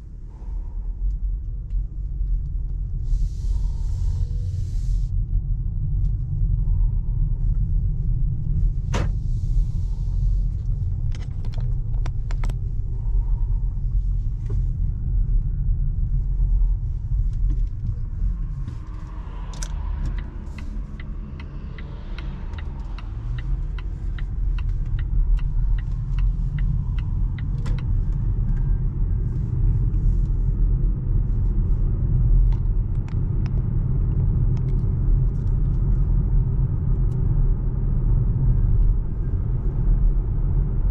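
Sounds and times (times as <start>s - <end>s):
road and tyre rumble: 0.0s - 40.9s
regular ticks: 19.5s - 27.9s.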